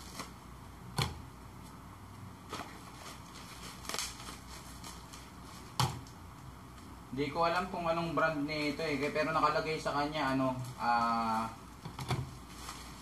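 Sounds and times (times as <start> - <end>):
bubble wrap crinkling: 0.0 - 0.4, 2.4 - 6.9, 9.7 - 13.0
sharp plastic crackles: 2.4 - 6.9.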